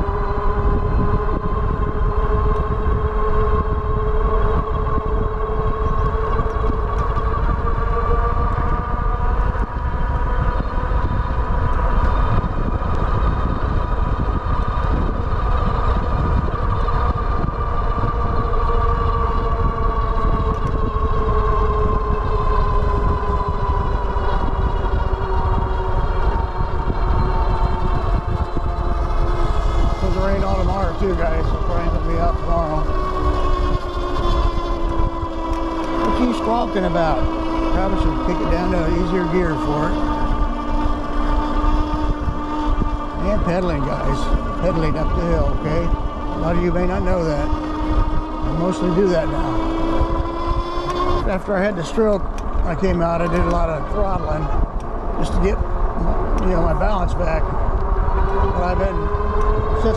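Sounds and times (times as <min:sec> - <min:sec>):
electric motor whining: 0:00.0 - 0:59.9
wind rumble on microphone: 0:00.0 - 0:59.9.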